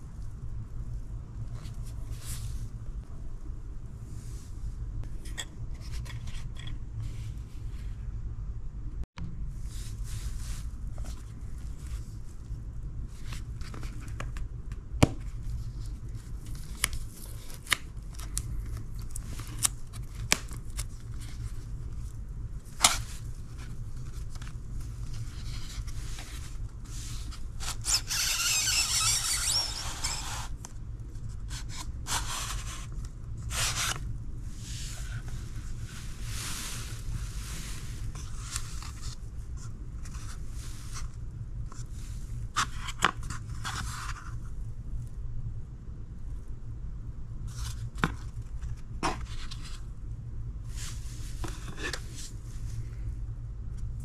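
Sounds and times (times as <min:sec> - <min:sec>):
low steady hum: 0:00.0 - 0:54.0
cardboard scraping: 0:33.5 - 0:41.1.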